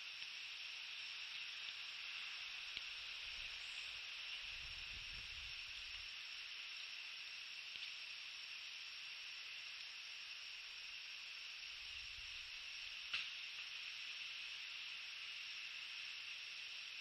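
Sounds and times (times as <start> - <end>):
microphone hiss: 0.0 - 17.0.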